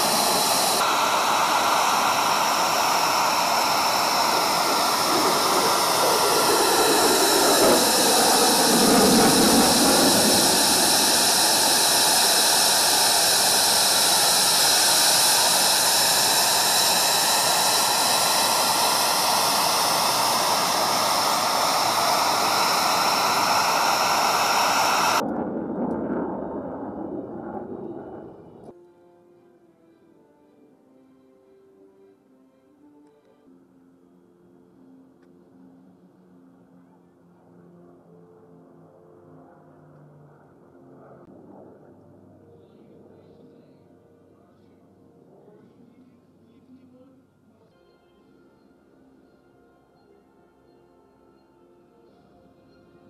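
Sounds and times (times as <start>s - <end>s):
jet roar with high whine: 0.0s - 28.8s, 39.5s - 43.7s.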